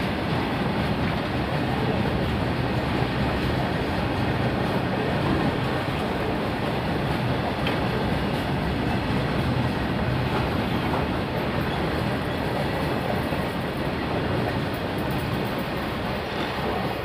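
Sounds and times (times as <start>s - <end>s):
freight train wheels on rails: 0.0s - 17.0s.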